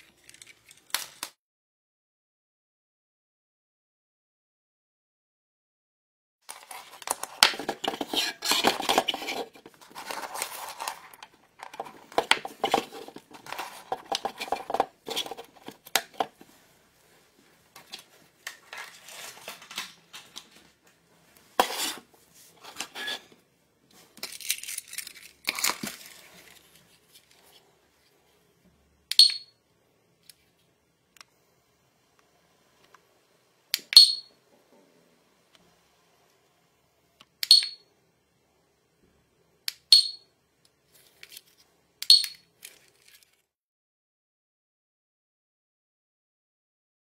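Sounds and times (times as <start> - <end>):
rustling: 6.5 - 28.2.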